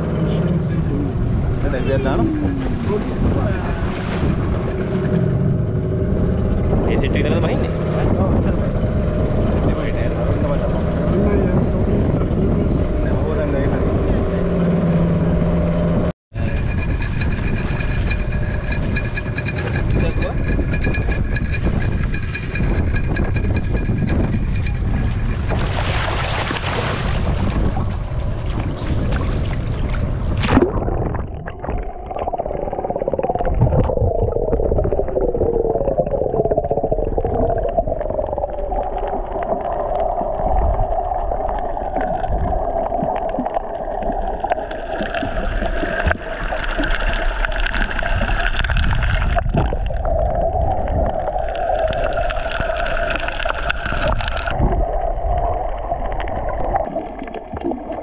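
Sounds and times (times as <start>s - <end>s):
gurgling whale calls: 30.6s - 58.0s.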